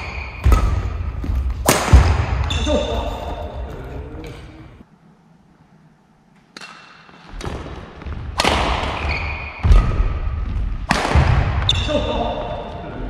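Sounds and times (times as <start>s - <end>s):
shoes squeaking on court: 0.0s - 1.6s, 2.4s - 4.7s, 6.4s - 10.7s
racket striking shuttlecock: 0.0s - 2.6s, 6.5s - 7.7s, 8.3s - 9.9s, 10.8s - 11.5s.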